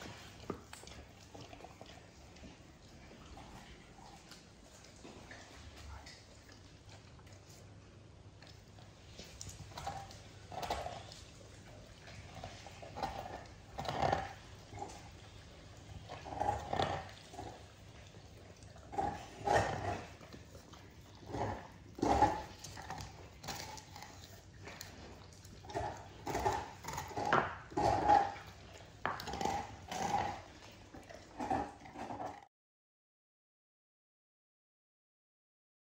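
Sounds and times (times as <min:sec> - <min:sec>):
dog licking and chomping: 0:00.0 - 0:32.3
metal bowl scraping on tile floor: 0:12.3 - 0:15.1, 0:16.1 - 0:17.6, 0:21.2 - 0:24.1, 0:25.7 - 0:30.4.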